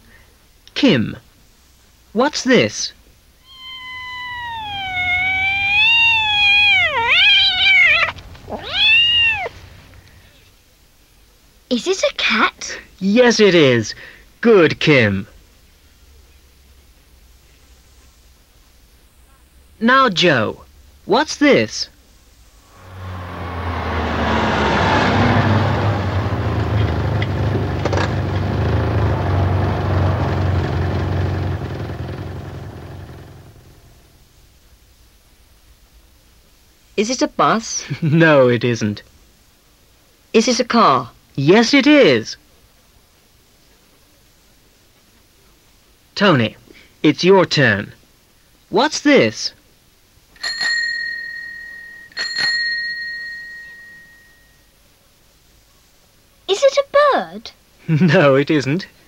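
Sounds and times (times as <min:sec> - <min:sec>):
cat meowing: 0:03.4 - 0:09.8
car engine humming: 0:04.2 - 0:10.4, 0:22.6 - 0:34.1.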